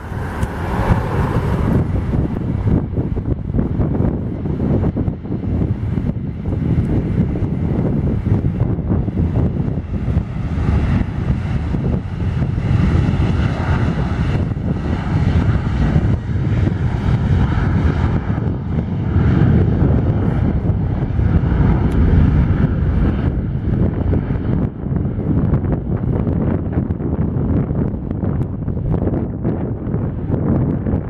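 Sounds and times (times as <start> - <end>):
jet engines at takeoff thrust: 0.0 - 31.0.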